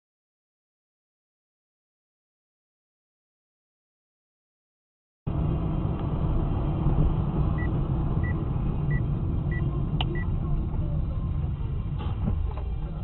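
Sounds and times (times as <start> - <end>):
moving car rumble inside cabin: 5.3 - 13.0.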